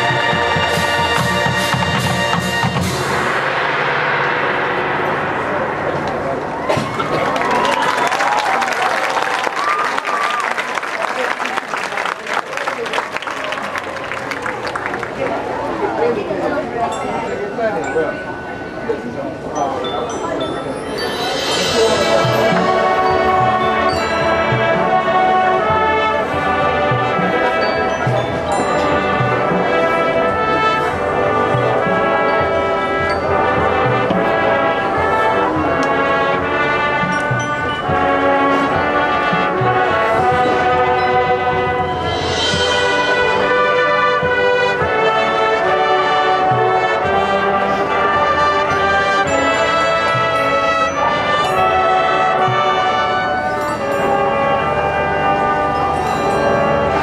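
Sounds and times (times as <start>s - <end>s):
marching band playing: 0.0s - 16.7s, 20.1s - 57.0s
cymbal crash: 2.7s - 6.8s.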